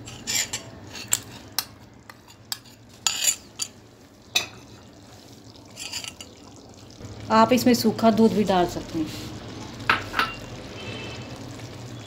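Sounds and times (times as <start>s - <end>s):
utensil scraping cooking pot: 0.0s - 3.8s, 4.4s - 6.4s.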